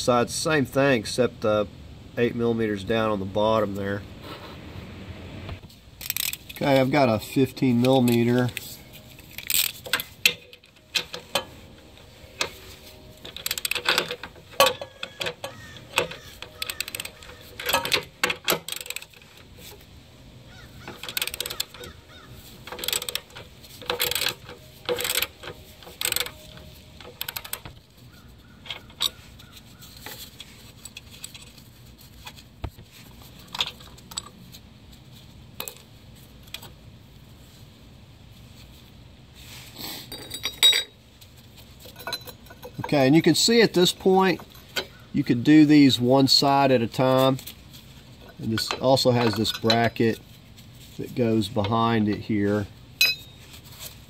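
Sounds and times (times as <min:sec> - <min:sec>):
hand ratchet clicking: 0:06.0 - 0:06.6, 0:09.3 - 0:11.5, 0:13.3 - 0:19.3, 0:20.8 - 0:27.6
metallic clinks of socket and bolts: 0:06.0 - 0:19.5, 0:22.7 - 0:27.7, 0:41.8 - 0:42.9, 0:53.0 - 0:53.4.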